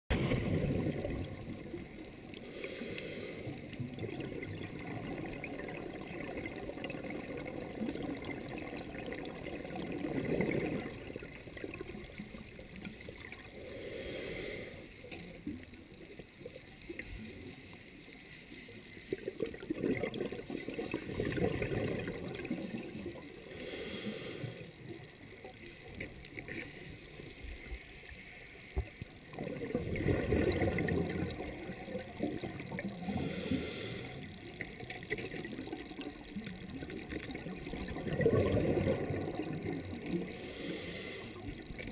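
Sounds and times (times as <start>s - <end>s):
exhaled air bubbling: 0.1s - 18.1s, 18.9s - 27.9s, 28.7s - 41.9s
regulator inhale hiss: 2.3s - 3.8s, 13.5s - 15.2s, 23.4s - 24.9s, 33.0s - 34.5s, 40.2s - 41.8s.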